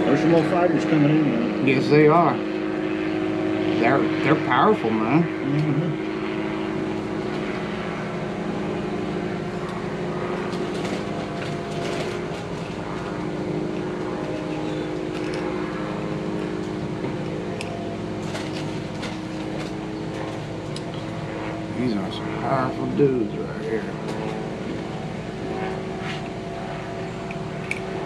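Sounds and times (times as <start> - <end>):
motor humming: 0.0 - 28.0.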